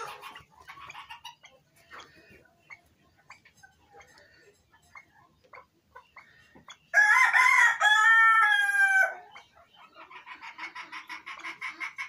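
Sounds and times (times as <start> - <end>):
rapid clucking: 0.0 - 6.9, 9.4 - 12.0
rooster crowing: 6.9 - 9.2.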